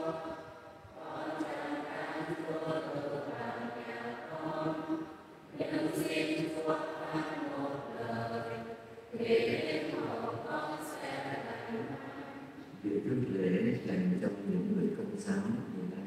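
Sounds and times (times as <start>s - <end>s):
choir singing a hymn: 0.0s - 12.8s.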